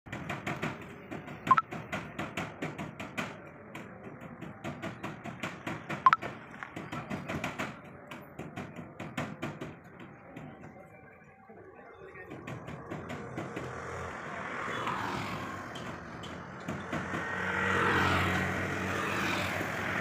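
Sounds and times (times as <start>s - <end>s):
rapid clicking and knocking: 0.1s - 10.5s, 12.2s - 14.2s, 15.6s - 18.7s.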